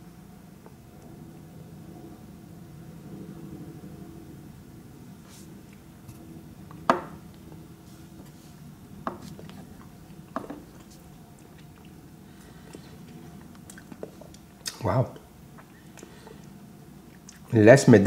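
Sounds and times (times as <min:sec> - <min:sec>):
low steady hum: 0:00.0 - 0:18.0
mouth and lip smacks: 0:12.7 - 0:17.5.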